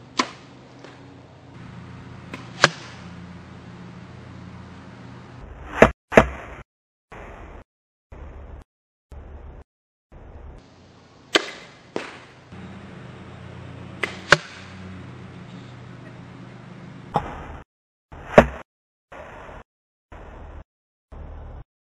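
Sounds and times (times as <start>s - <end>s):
arrows hitting a target: 0.0s - 1.1s, 2.2s - 3.3s, 5.7s - 6.6s, 11.3s - 12.5s, 13.9s - 14.8s, 18.2s - 18.6s.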